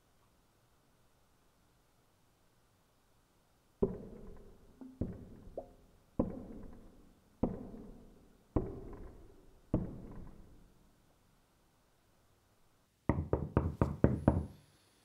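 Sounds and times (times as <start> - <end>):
heavy knocking with ringing tail: 3.8 - 10.6.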